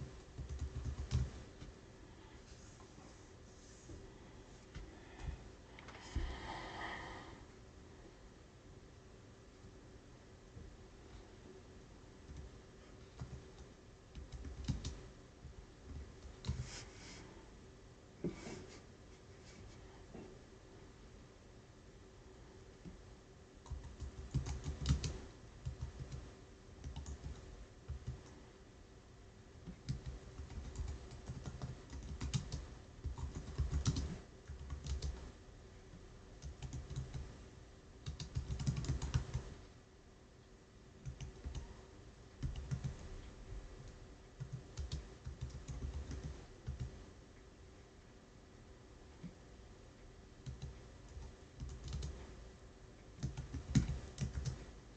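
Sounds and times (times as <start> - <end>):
computer keyboard typing: 0.1 - 1.5, 12.3 - 15.1, 15.9 - 16.7, 23.6 - 28.3, 29.6 - 35.3, 36.4 - 37.3, 38.0 - 39.5, 41.0 - 41.7, 42.4 - 43.1, 44.4 - 47.0, 50.4 - 52.2, 53.2 - 54.6.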